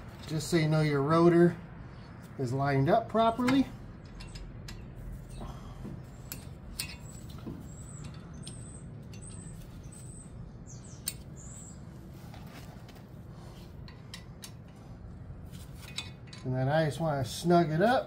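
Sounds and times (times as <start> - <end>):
metallic clicks and taps of bolts: 3.4 - 5.0, 6.3 - 9.6, 11.0 - 11.3, 13.8 - 14.8
high bird chirps: 6.0 - 12.0.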